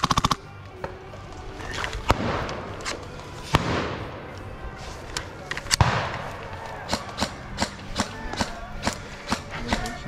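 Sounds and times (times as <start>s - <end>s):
airsoft gunfire cracks: 5.8s - 6.3s.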